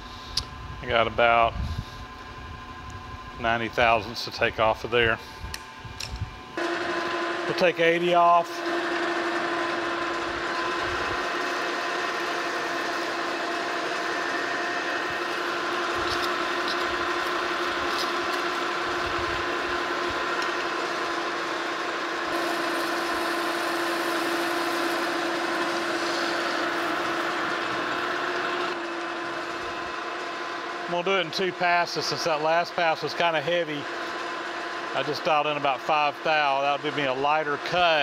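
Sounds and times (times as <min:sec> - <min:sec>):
lathe gearing whine: 0:00.0 - 0:38.0
tool cutting steel hiss: 0:22.3 - 0:27.2.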